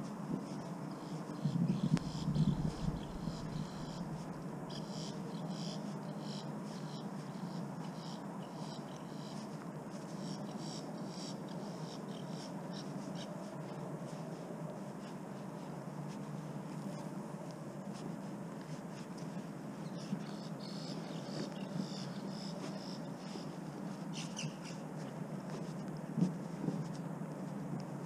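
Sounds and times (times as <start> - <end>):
steady low hum: 0.0 - 28.0
insects chirping in pulsed bursts: 1.4 - 4.2
short low rumble: 1.4 - 4.4.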